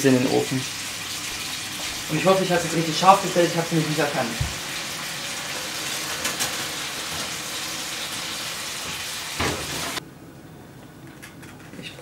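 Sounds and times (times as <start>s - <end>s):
meat sizzling in a frying pan: 0.3s - 10.0s
oven door thump: 9.4s - 9.9s.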